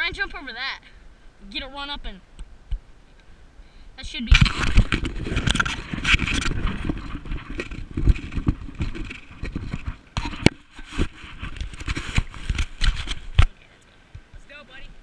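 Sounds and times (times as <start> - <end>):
wind buffeting microphone: 4.0 - 15.0.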